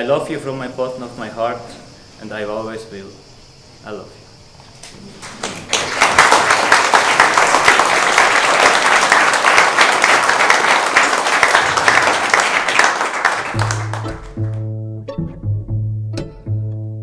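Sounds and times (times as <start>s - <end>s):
crowd applauding: 5.1s - 14.7s
music with low repeated notes: 13.6s - 17.0s.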